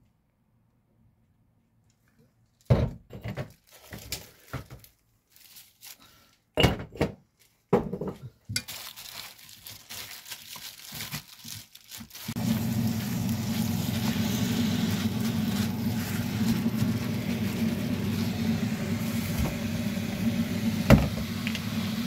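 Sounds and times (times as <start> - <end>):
plastic glove rustling: 3.5 - 6.3, 8.5 - 22.0.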